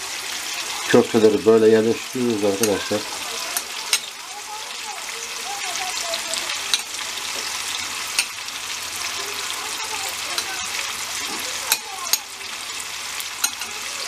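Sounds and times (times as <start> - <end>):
meatballs sizzling in oil: 0.0 - 14.0
metal tongs clicking on plate: 11.7 - 12.3, 13.4 - 13.8.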